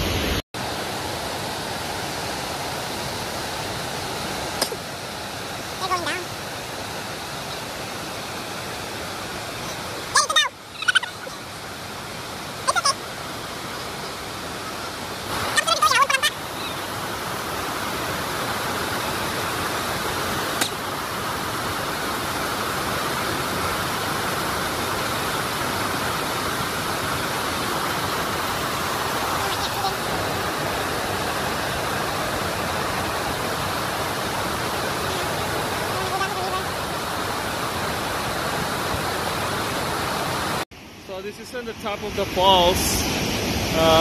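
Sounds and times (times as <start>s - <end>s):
rushing creek water: 0.0s - 44.0s
short wavering cries: 10.1s - 11.5s, 12.6s - 13.1s.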